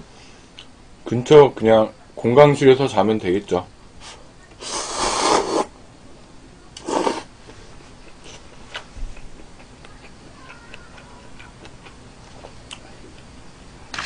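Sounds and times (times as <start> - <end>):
person slurping noodles: 4.6 - 5.7, 6.8 - 7.3
quiet chewing with mouth clicks: 7.5 - 13.4.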